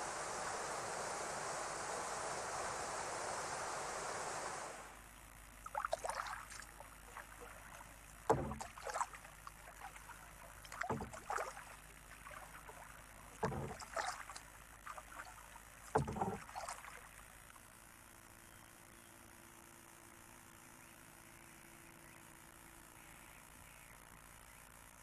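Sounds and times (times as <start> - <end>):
kayak paddle splashing: 5.6 - 17.3
dull low thump: 8.2 - 8.9, 10.8 - 11.4, 13.4 - 13.9, 15.9 - 16.5.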